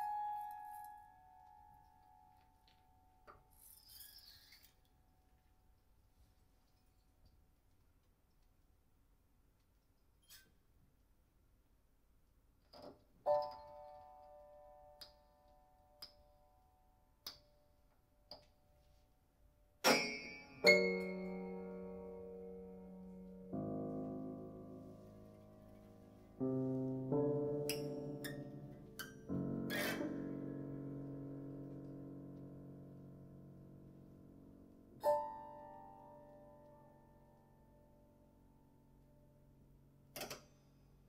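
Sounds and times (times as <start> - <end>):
piano note ringing: 19.9 - 39.1.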